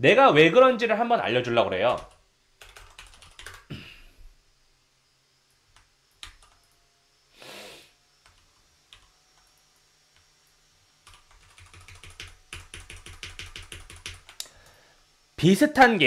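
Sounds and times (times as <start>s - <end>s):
keyboard typing: 1.8s - 3.7s, 5.7s - 6.7s, 11.0s - 14.5s
brief hiss: 7.3s - 8.0s.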